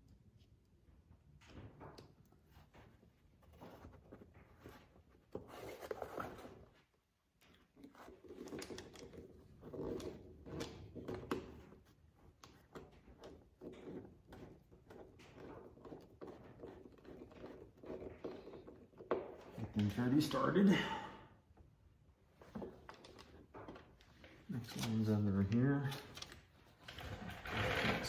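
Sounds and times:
handling rustles and scrapes: 2.4s - 20.6s.

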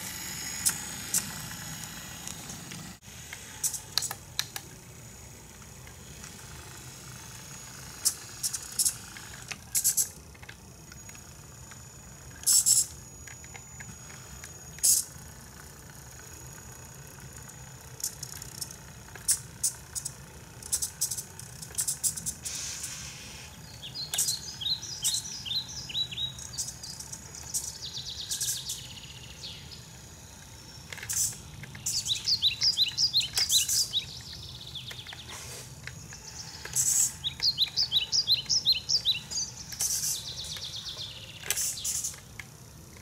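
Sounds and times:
model truck motor hum: 0.0s - 43.0s
short clicks and rattles: 8.0s - 22.4s, 30.3s - 43.0s
brief hiss: 22.4s - 23.5s, 35.3s - 35.8s.

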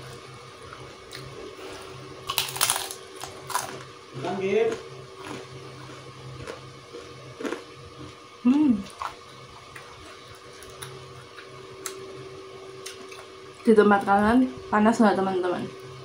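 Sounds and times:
electrical hum: 0.0s - 16.0s
person humming: 8.4s - 8.9s.

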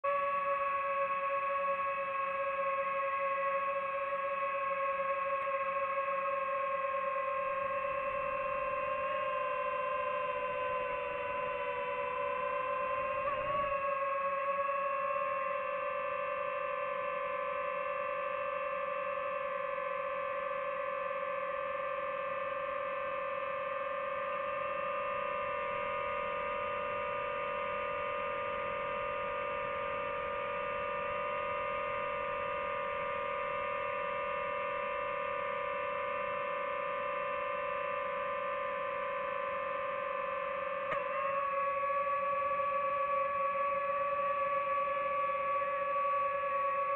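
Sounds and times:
drone propellers humming: 7.4s - 14.2s.

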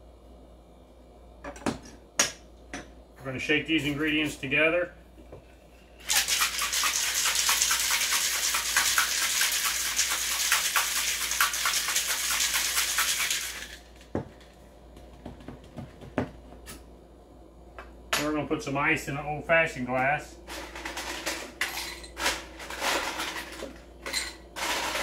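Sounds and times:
ice rattling in cocktail shaker: 6.0s - 14.0s.

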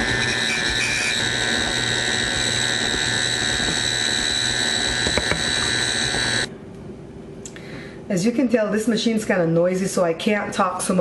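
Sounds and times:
stand mixer motor whine: 0.0s - 6.5s.

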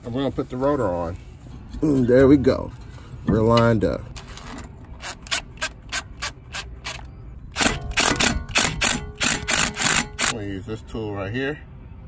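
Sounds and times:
ratchet wrench clicking: 7.6s - 10.4s.

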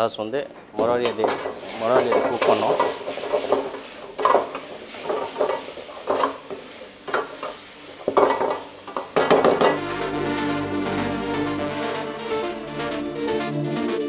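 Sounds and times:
metal ladle scraping in a wok: 1.2s - 9.4s
sauce sizzling in a pan: 1.5s - 9.6s
background music: 9.4s - 14.0s.

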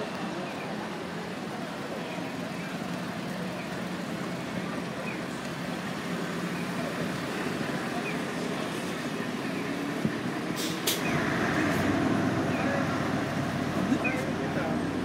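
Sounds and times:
traffic noise: 0.0s - 15.0s
voices of passers-by: 0.0s - 15.0s.

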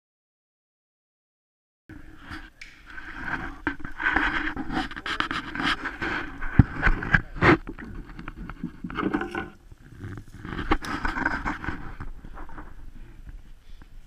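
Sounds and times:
clicks and scrapes of handling: 2.2s - 12.9s.

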